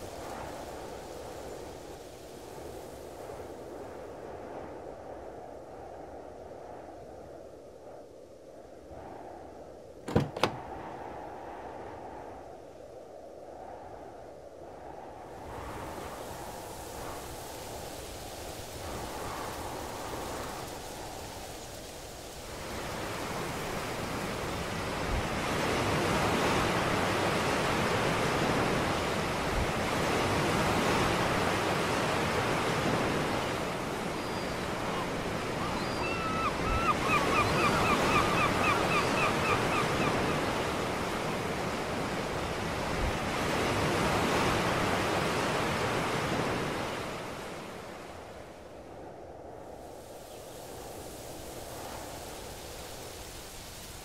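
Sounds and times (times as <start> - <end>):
surf washing onto beach: 0.0 - 3.9, 15.3 - 48.7, 49.8 - 54.0.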